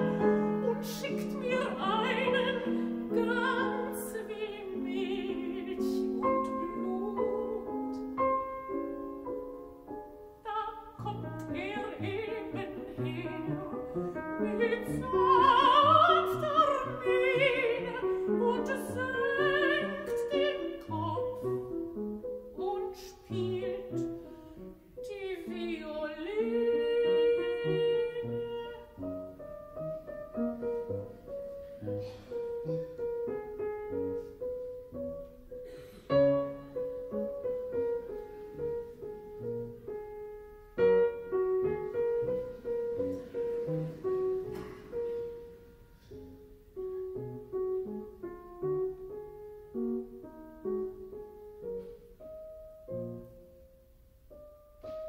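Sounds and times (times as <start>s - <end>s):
woman singing with vibrato: 0.0s - 8.0s, 10.4s - 21.5s, 22.5s - 24.2s, 25.0s - 29.4s
piano accompaniment: 0.0s - 55.0s.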